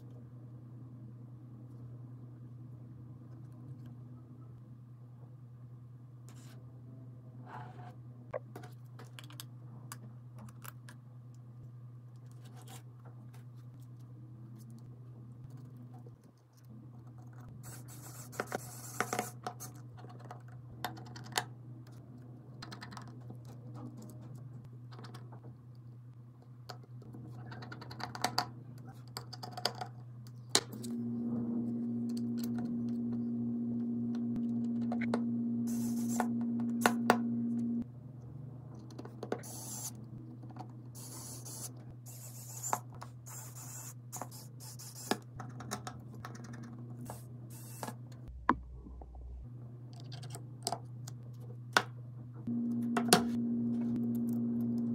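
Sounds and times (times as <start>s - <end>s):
low steady hum: 0.0s - 18.7s, 28.4s - 54.9s
small machine humming: 30.7s - 37.9s, 41.0s - 45.2s, 47.1s - 48.4s, 52.4s - 54.9s.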